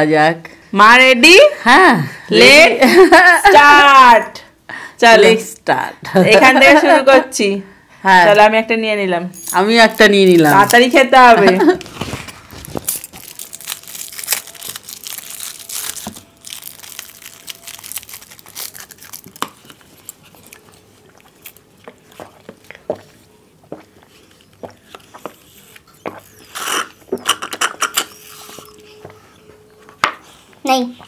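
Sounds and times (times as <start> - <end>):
plastic wrappers tearing and crinkling: 9.9 - 10.9, 11.8 - 20.6
cartons crinkling when squeezed: 11.8 - 23.2.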